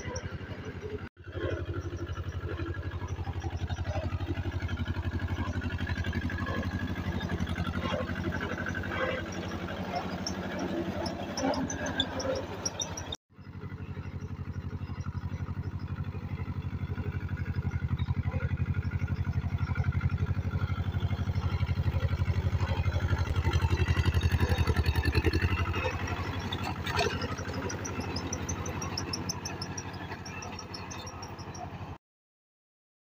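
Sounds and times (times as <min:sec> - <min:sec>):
tractor diesel engine chugging: 0:00.0 - 0:32.0.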